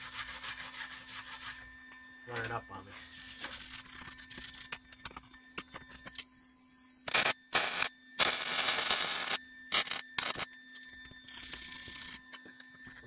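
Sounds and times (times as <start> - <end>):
welder arc crackling: 7.1 - 10.4.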